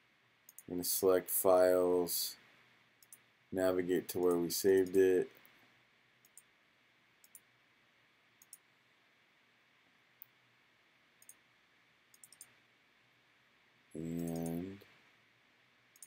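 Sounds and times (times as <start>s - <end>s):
computer mouse clicks: 0.5s - 0.7s, 3.0s - 3.2s, 6.2s - 6.5s, 7.2s - 7.5s, 8.4s - 8.7s, 11.2s - 11.4s, 12.1s - 12.6s, 14.1s - 14.6s.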